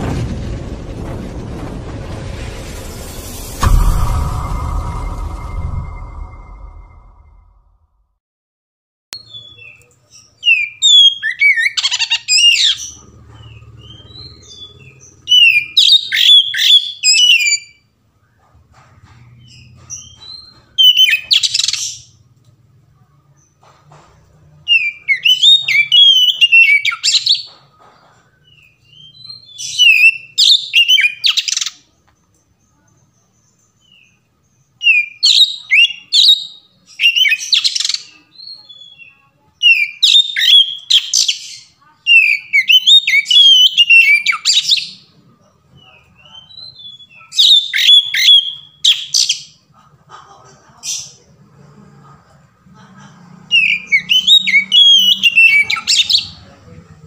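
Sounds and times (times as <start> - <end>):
songbird whistling song: 24.7 - 27.5, 34.8 - 41.4, 46.2 - 49.3, 53.5 - 56.4.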